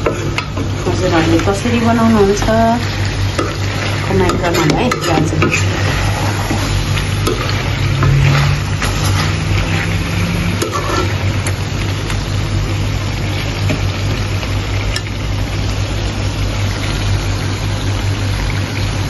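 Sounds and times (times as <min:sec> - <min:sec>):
curry sizzling in a wok: 0:00.0 - 0:19.0.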